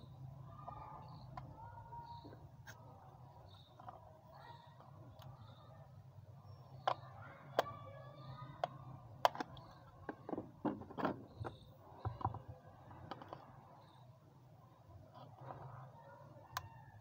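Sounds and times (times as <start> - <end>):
hard plastic clicks and knocks: 8.6 - 13.5.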